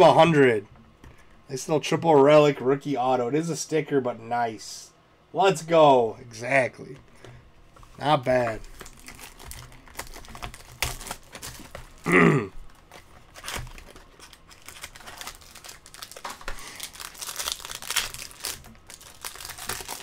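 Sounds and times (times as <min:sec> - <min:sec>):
cards being handled: 0:07.8 - 0:12.0
foil wrapper crinkling and tearing: 0:08.3 - 0:20.0.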